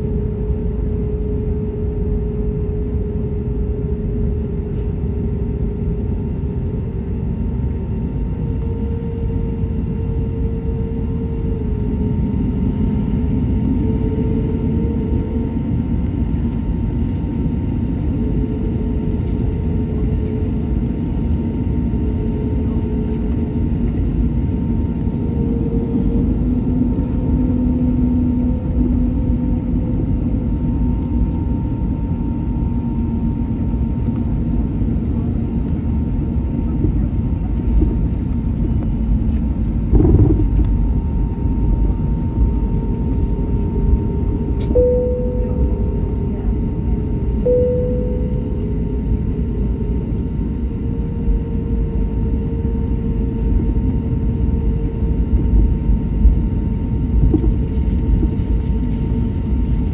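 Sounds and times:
deep rumble: 0.0 - 59.9
jet engines humming: 21.7 - 52.7
held tones shifting in pitch: 44.7 - 46.3, 47.5 - 48.8.

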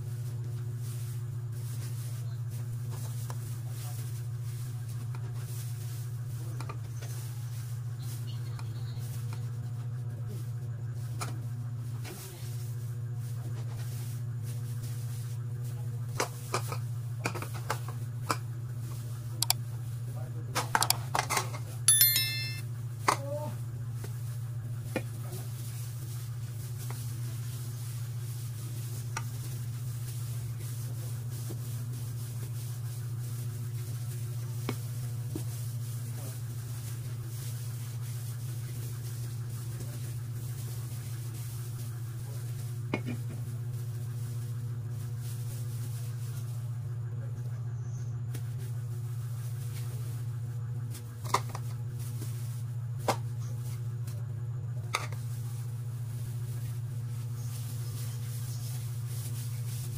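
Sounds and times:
tumbler rubbing over bread: 54.9 - 59.9.

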